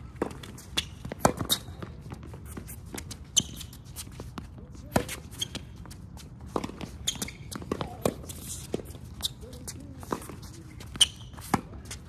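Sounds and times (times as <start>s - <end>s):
footsteps on court: 0.0s - 12.0s
racket hitting tennis ball: 0.2s - 3.7s, 4.9s - 5.6s, 6.4s - 9.0s.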